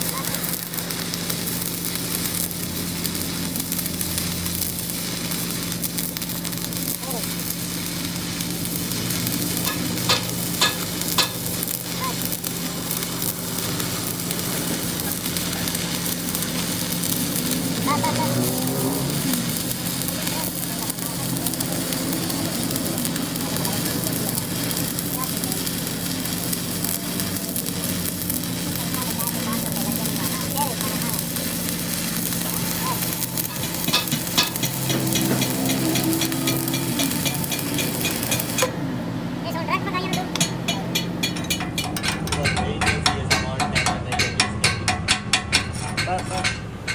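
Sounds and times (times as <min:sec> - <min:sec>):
welding arc crackling and sizzling: 0:00.0 - 0:46.9.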